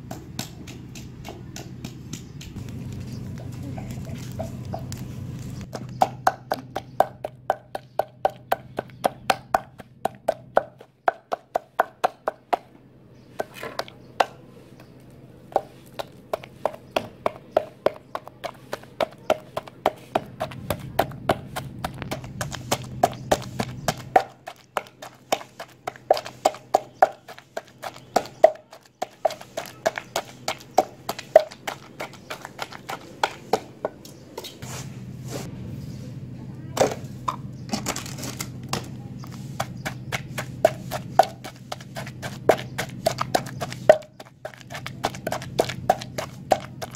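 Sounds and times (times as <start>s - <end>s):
wooden pestle pounding in mortar: 0.0s - 2.6s, 5.6s - 12.7s, 15.5s - 34.0s, 38.7s - 46.9s.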